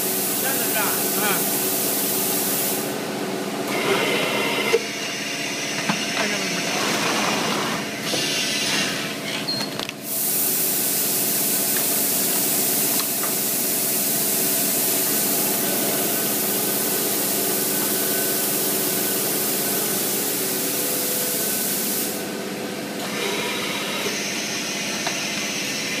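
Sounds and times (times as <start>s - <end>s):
loud air hiss: 0.0s - 3.0s, 10.0s - 22.4s
vacuum forming machine humming: 0.0s - 26.0s.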